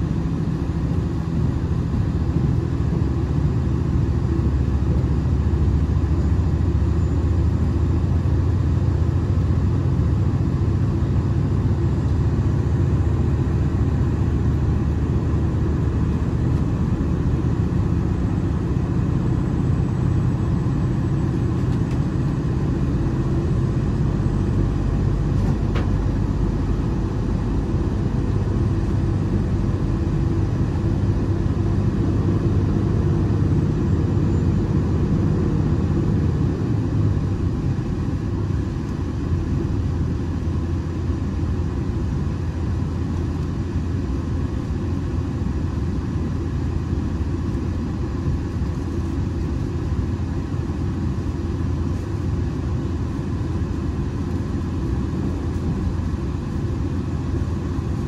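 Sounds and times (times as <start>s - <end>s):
train rumbling on rails: 0.0s - 38.6s.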